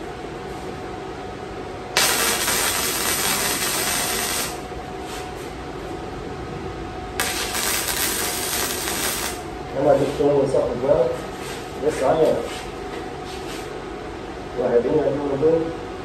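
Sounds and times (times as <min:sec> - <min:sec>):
arc welder crackling and hissing: 0:01.9 - 0:05.5, 0:07.2 - 0:10.3.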